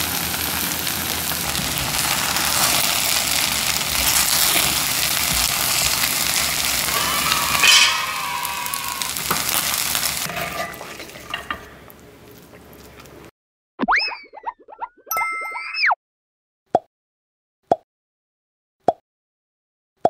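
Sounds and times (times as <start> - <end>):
rice sizzling in a skillet: 0.0 - 12.0
wooden spoon scraping a pan: 1.6 - 11.8.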